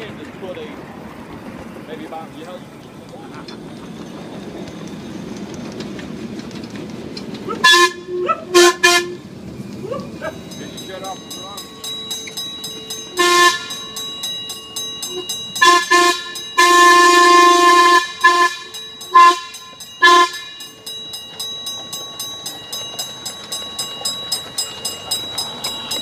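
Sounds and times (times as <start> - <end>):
locomotive running beat: 0.0 - 26.0
locomotive chime whistle blasts: 7.6 - 21.8.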